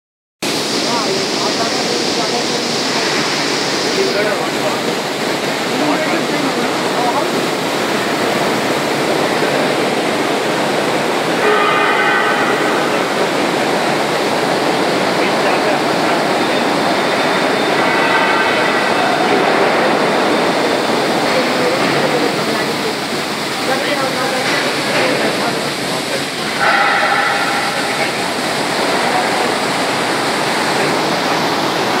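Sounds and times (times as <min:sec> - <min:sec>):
industrial machinery din: 0:00.4 - 0:32.0
high ringing tone: 0:26.6 - 0:28.4.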